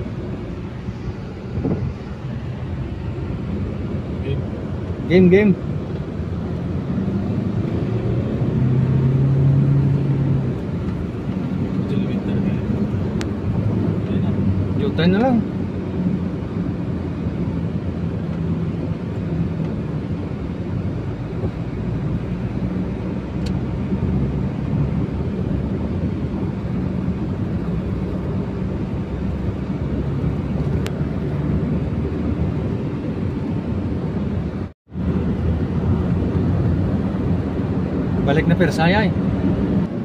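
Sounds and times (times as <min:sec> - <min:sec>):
engine and road hum in cab: 0:00.0 - 0:40.0.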